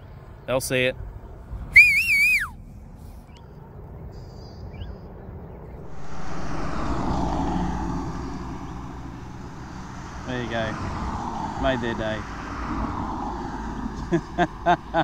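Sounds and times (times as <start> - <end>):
wavering whistle: 1.8 - 2.6
vehicle noise rushing: 5.8 - 15.0.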